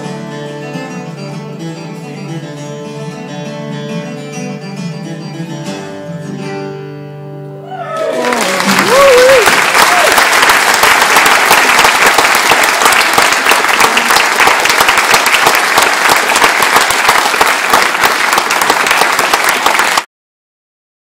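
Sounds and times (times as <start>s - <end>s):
audience applauding: 7.9s - 20.1s.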